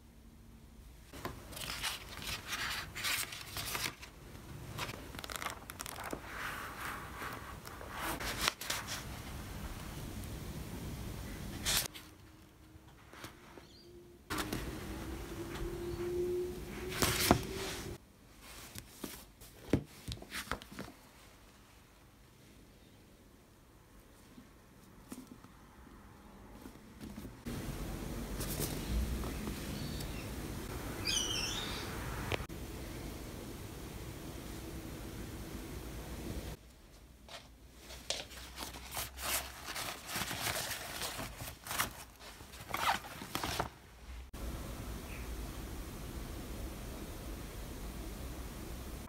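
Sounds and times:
pages being turned: 0:01.2 - 0:09.4, 0:11.5 - 0:12.3, 0:16.8 - 0:21.0, 0:28.3 - 0:29.6, 0:37.3 - 0:43.8
books tapping and rustling: 0:18.7 - 0:21.0, 0:26.6 - 0:27.4
fabric bag rustling: 0:37.3 - 0:43.9.

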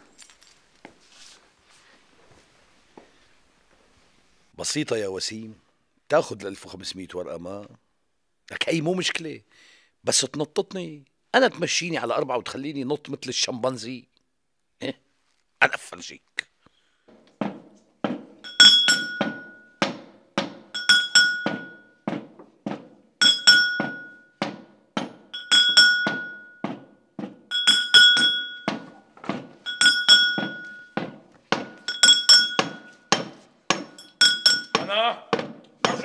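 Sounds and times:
pestle striking brass mortar: 0:17.1 - 0:36.0.

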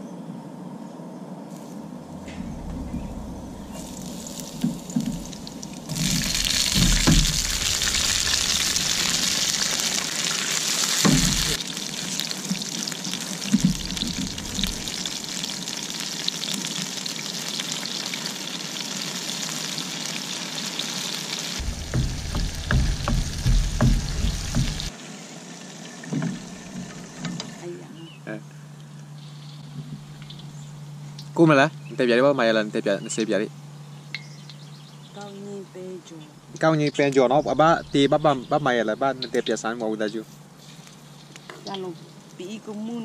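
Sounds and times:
food sizzling in hot oil: 0:03.7 - 0:27.6
pan and utensil knocks: 0:11.0 - 0:11.6, 0:21.6 - 0:24.9.

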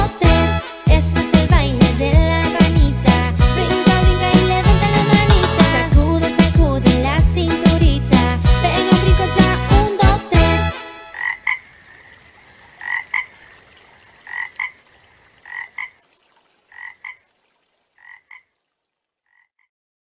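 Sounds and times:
children's song: 0:00.0 - 0:10.9
frog croaking: 0:11.1 - 0:17.3, 0:18.0 - 0:18.6, 0:19.2 - 0:19.7.

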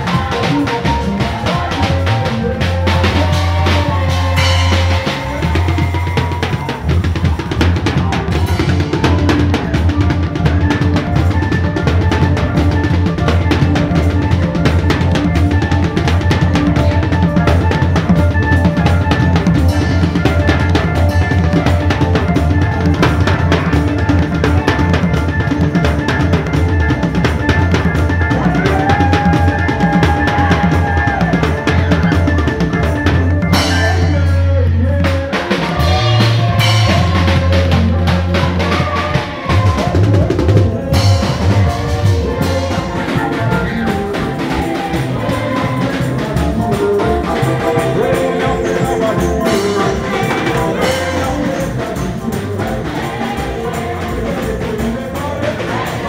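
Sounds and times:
fast busy drum kit: 0:00.0 - 0:56.0
live praise band music: 0:00.0 - 0:56.0
heavy steady bass line: 0:30.3 - 0:55.8.

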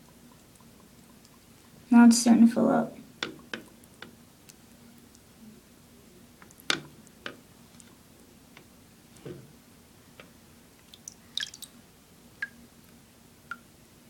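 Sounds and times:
small water splashes: 0:10.9 - 0:11.7.

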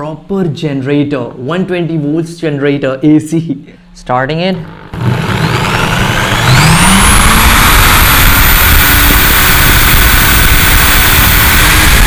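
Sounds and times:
electric drill motor whine: 0:04.6 - 0:12.0.

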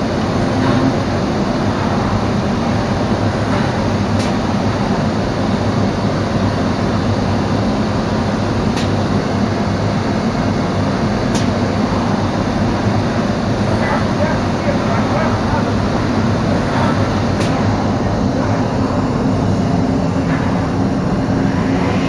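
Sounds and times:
machine running with low hum: 0:00.0 - 0:22.0.

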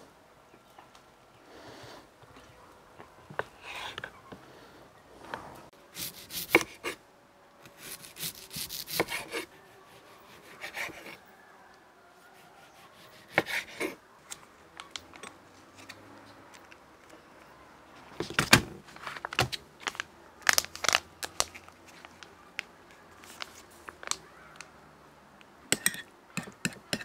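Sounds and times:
knife cutting tomato: 0:06.0 - 0:07.0, 0:07.7 - 0:11.2, 0:12.8 - 0:14.0
plastic pouch crinkling: 0:18.9 - 0:24.7.

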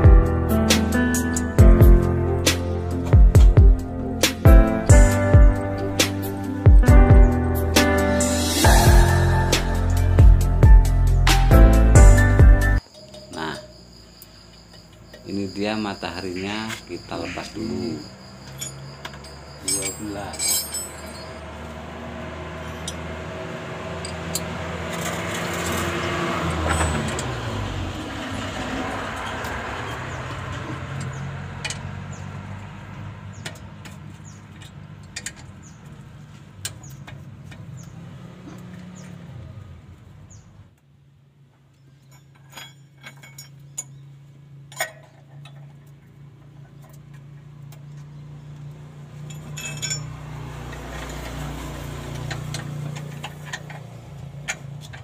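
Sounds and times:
engine humming in background: 0:00.0 - 0:13.7, 0:14.6 - 0:55.0
wrench clicking on metal bolts: 0:49.2 - 0:51.4.

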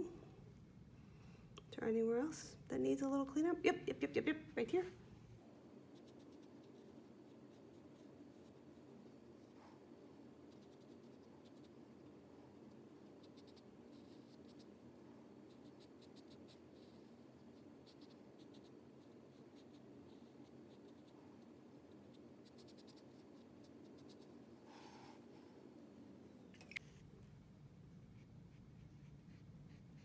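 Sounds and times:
low room hum: 0:00.0 - 0:30.0
paintbrush scratching on paper: 0:05.8 - 0:25.2, 0:28.1 - 0:30.0.

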